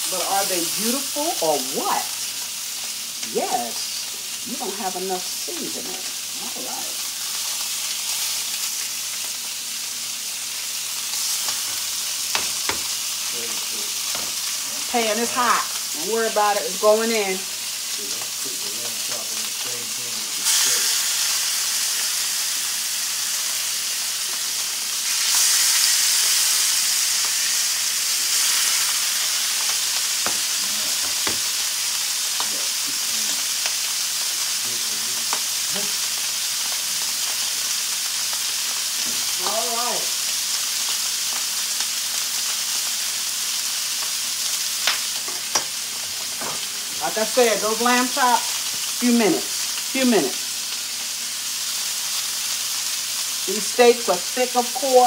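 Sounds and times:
steaks sizzling in oil: 0:00.0 - 0:55.0
tongs knocking on pans: 0:44.8 - 0:45.8.

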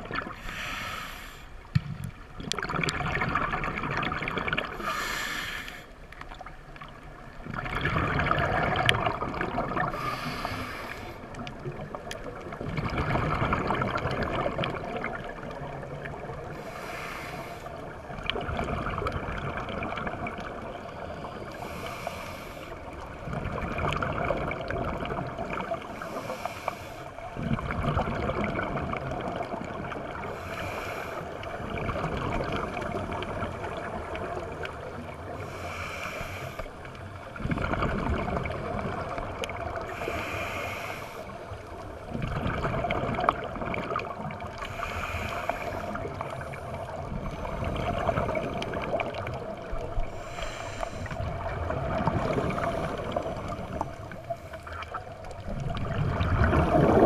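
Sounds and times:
exhaled bubbles rushing: 0:00.0 - 0:00.4, 0:02.0 - 0:05.0, 0:06.3 - 0:10.6, 0:11.4 - 0:16.6, 0:17.8 - 0:20.8, 0:23.1 - 0:25.9, 0:27.3 - 0:30.3, 0:31.4 - 0:35.3, 0:37.2 - 0:40.0, 0:41.4 - 0:44.6, 0:45.5 - 0:50.2, 0:51.0 - 0:57.0
regulator hiss on inhalation: 0:00.4 - 0:01.5, 0:04.8 - 0:05.9, 0:10.0 - 0:11.2, 0:16.6 - 0:17.7, 0:21.6 - 0:22.8, 0:39.9 - 0:41.4, 0:44.6 - 0:46.0, 0:50.1 - 0:51.2.

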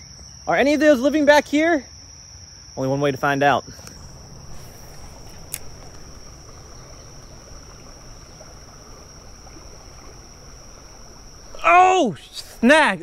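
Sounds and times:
high insect drone: 0:00.0 - 0:13.0
flowing creek water: 0:03.7 - 0:13.0
fishing reel bail click: 0:04.9 - 0:06.0.

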